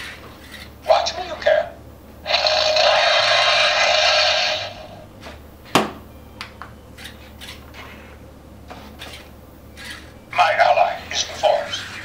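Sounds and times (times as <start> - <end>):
soft motor whirs: 0.0 - 0.8, 6.9 - 12.0.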